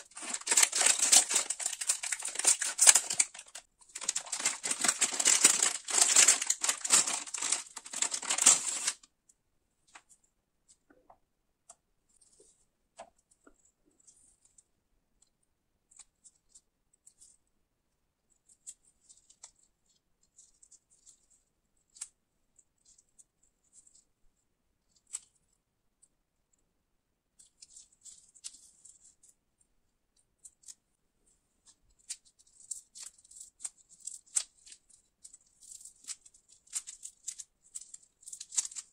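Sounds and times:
plastic wrapper crinkling and tearing: 0:00.0 - 0:09.1, 0:32.0 - 0:38.9
cereal bar crackling: 0:00.0 - 0:09.2, 0:31.6 - 0:38.9.

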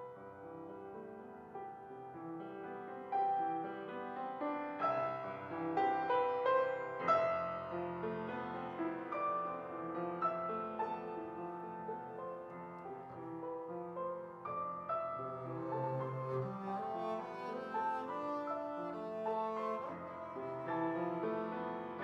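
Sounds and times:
grand piano classical passage: 0:00.0 - 0:22.0.

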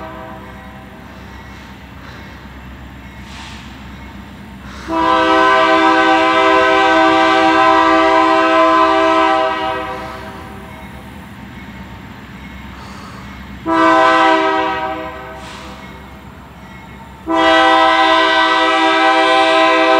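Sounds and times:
locomotive air horn blasts: 0:00.0 - 0:01.0, 0:04.7 - 0:10.6, 0:13.6 - 0:15.8, 0:17.2 - 0:19.9.

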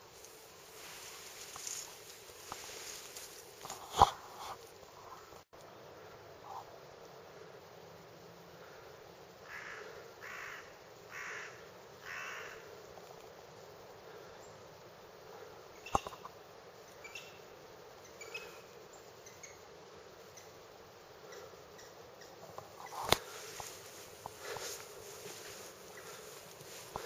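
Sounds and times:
crow cawing: 0:09.4 - 0:12.7
faint ticks: 0:12.9 - 0:13.4, 0:21.3 - 0:27.0
sharp click: 0:23.0 - 0:23.3.

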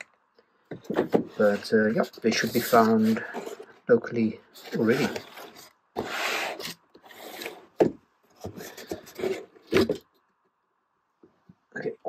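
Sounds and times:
cardboard scraping on cardboard: 0:04.6 - 0:10.0.

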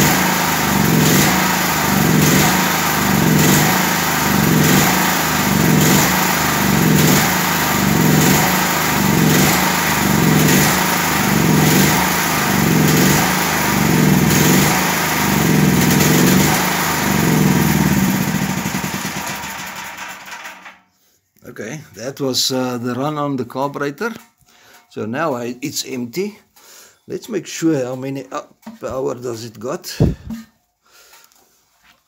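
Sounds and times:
generator engine pulsing: 0:00.0 - 0:20.6.

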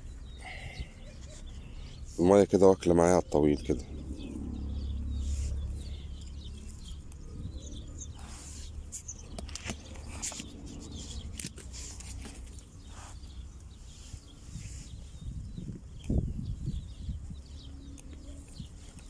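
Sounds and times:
faint bird chirps: 0:00.0 - 0:02.2
low rumble: 0:03.2 - 0:09.4
handling clicks and rustles: 0:08.8 - 0:12.9.

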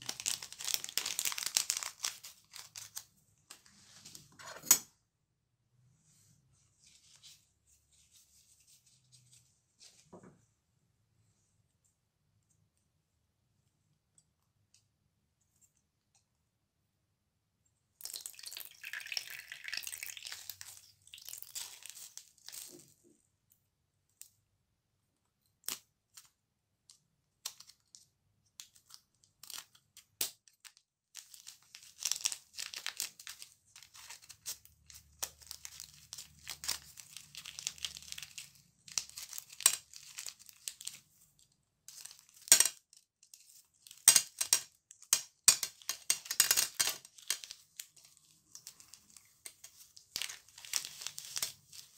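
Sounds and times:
crinkling plastic: 0:00.0 - 0:03.8, 0:18.1 - 0:23.1, 0:27.4 - 0:51.9.

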